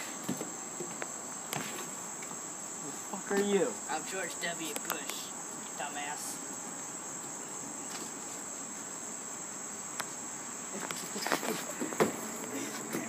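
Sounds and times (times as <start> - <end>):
high-pitched insect chorus: 0.0 - 13.0
knocks and thuds: 11.8 - 12.2.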